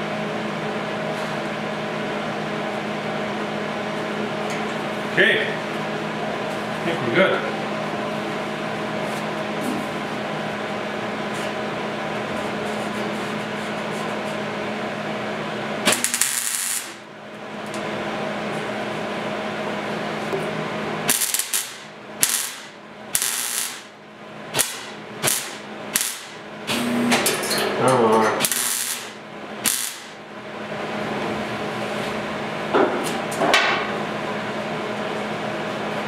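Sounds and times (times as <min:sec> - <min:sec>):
steady hum: 0:00.0 - 0:36.0
welder crackling: 0:15.9 - 0:17.0, 0:21.1 - 0:23.9, 0:24.5 - 0:26.4, 0:28.4 - 0:30.2.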